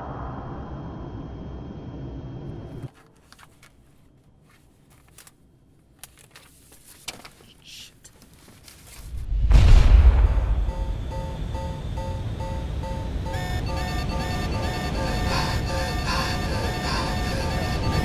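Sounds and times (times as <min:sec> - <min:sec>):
faint clicks and rustles: 0:02.9 - 0:09.2
jet engines rumbling in flight: 0:09.1 - 0:18.0.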